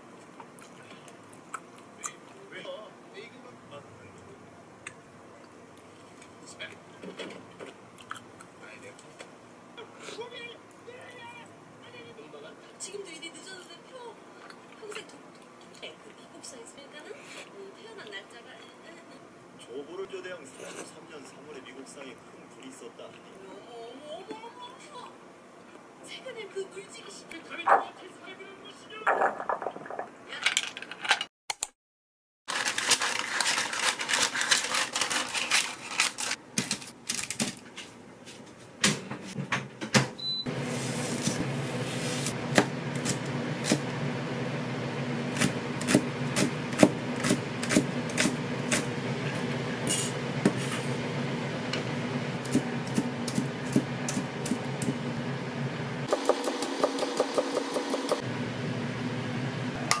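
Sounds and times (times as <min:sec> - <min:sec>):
knife chopping on cutting board: 0:42.5 - 0:43.8, 0:45.4 - 0:48.9, 0:52.5 - 0:55.0, 0:56.1 - 0:58.2.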